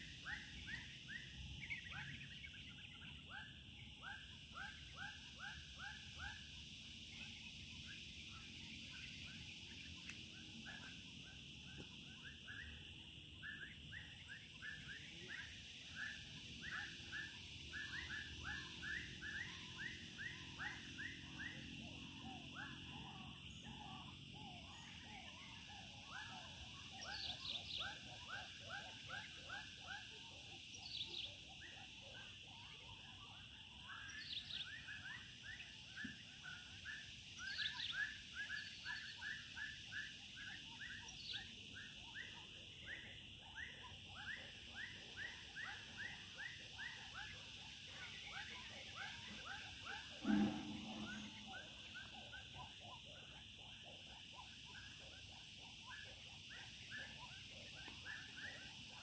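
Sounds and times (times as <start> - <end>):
frogs chirping: 0.0 - 59.0
insect drone: 0.0 - 59.0
higher chirp: 49.2 - 52.7
low-pitched thud: 50.2 - 51.6.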